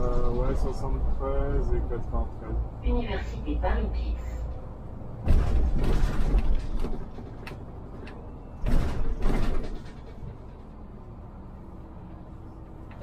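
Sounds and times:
bus engine rumble: 0.0s - 13.0s
bus doors operating: 5.0s - 13.0s.

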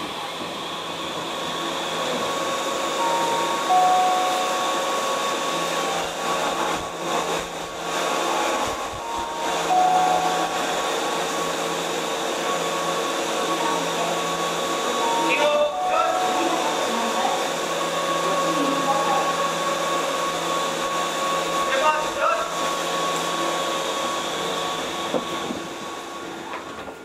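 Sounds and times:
train blowers whirring: 0.0s - 27.0s
falling two-note chime: 3.0s - 5.0s, 9.0s - 11.2s, 15.0s - 17.1s.

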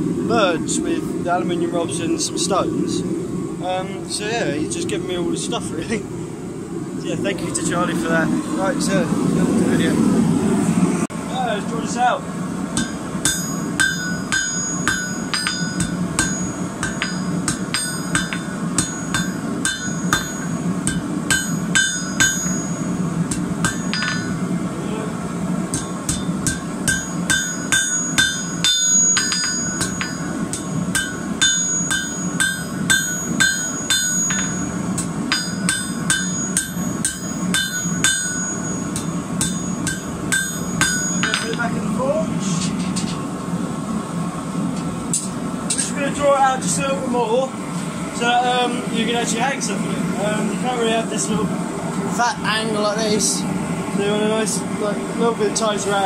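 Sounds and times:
hammer striking metal on anvil: 12.8s - 24.5s, 25.7s - 41.7s.

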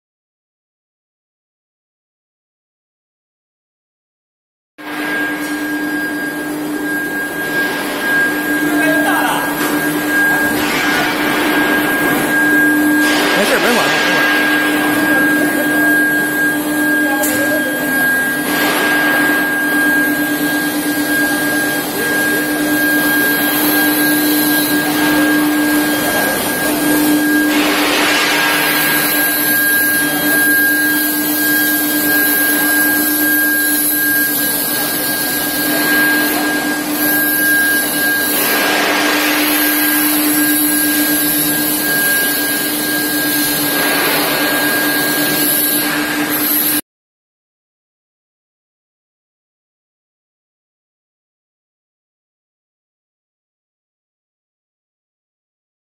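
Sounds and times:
loud rushing machine noise: 4.8s - 46.8s
machine hum and whine: 4.8s - 46.8s.

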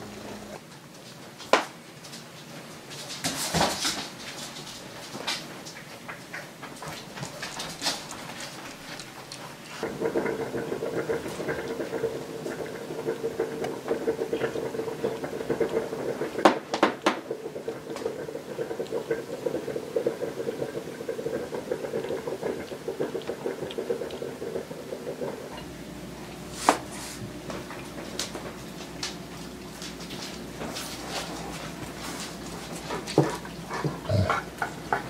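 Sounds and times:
cat purring: 0.0s - 0.6s, 6.9s - 25.6s, 28.6s - 35.0s
room noise: 0.0s - 35.0s.

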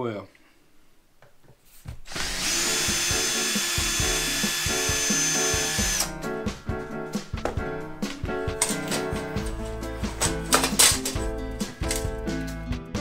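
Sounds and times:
cordless drill whining: 2.1s - 6.2s
background music: 2.1s - 13.0s.

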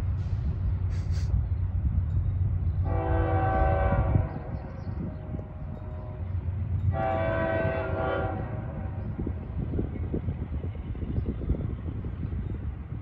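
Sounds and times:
distant train air horn: 2.8s - 9.0s.

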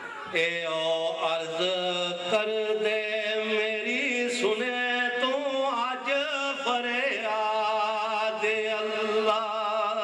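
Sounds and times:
man singing long drawn-out notes: 0.3s - 10.0s.

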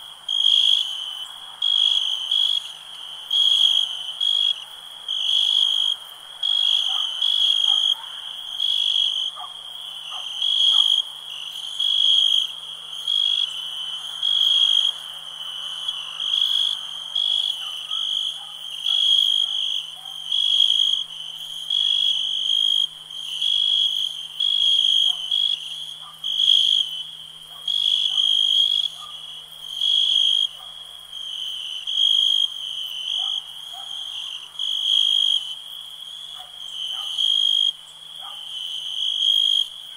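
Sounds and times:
frogs calling: 0.0s - 30.6s
crickets chirping trill: 0.0s - 39.9s.

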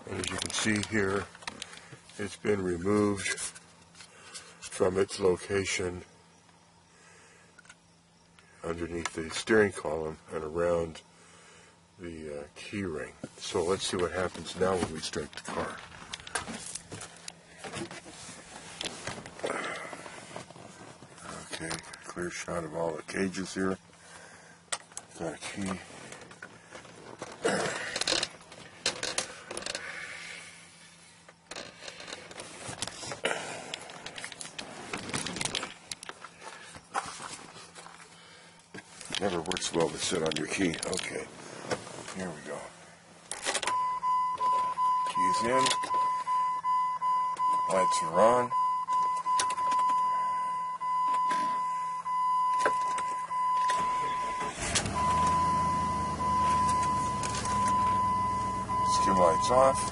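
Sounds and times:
rustling handling noise: 13.2s - 22.1s, 33.8s - 46.4s
car engine idling: 50.4s - 59.9s.

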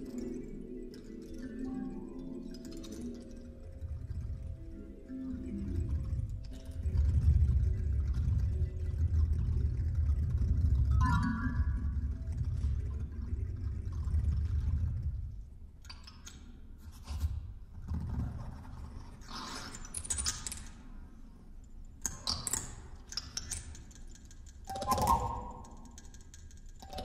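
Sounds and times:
kalimba rattling and scraping: 2.4s - 5.0s
low electronic rumble: 3.3s - 15.8s.

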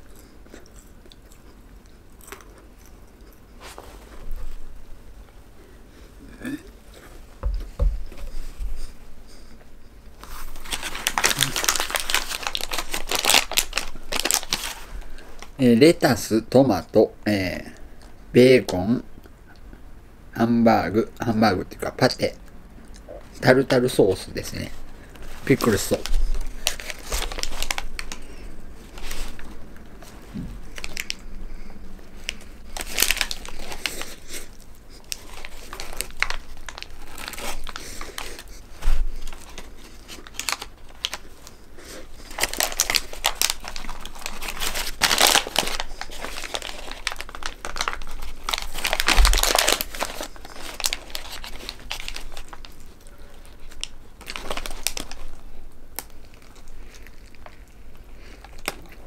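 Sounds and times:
paper wrapper crinkling: 10.2s - 16.2s, 23.7s - 31.3s, 32.1s - 59.0s.

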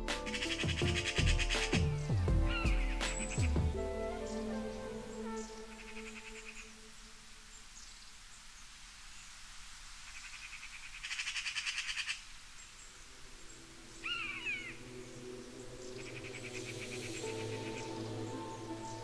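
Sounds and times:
soft music: 0.0s - 7.6s, 13.1s - 19.0s.

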